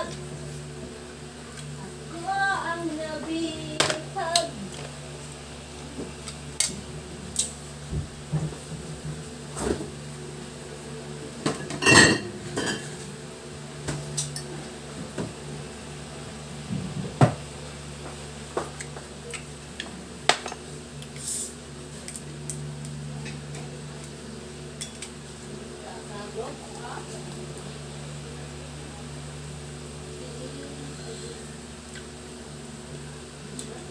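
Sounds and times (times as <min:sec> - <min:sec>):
steady low hum: 0:00.0 - 0:33.9
dishes clinking and knocking: 0:11.5 - 0:13.0.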